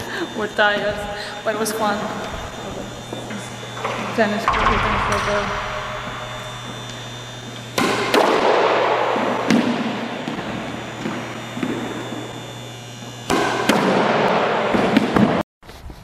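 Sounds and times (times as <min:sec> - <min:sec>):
squash ball knocks with echo: 0:04.5 - 0:10.5, 0:13.3 - 0:15.4.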